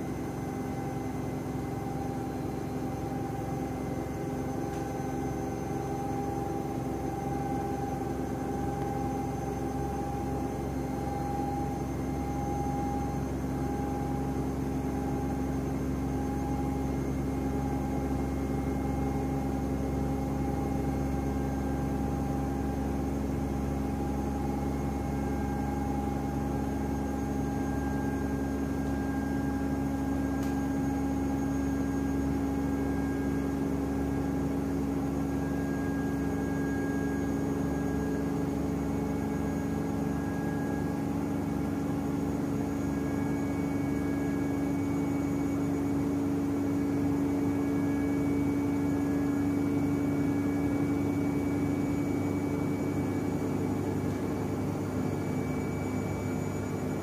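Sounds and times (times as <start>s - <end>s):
washing machine spinning: 0.0s - 57.0s.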